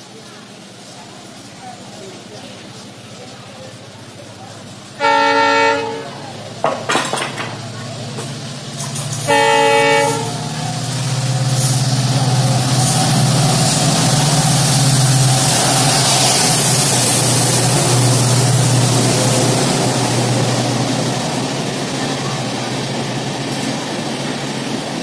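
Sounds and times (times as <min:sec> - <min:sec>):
train rumbling past: 0:00.0 - 0:25.0
locomotive horn blast: 0:05.0 - 0:06.2, 0:09.2 - 0:10.6.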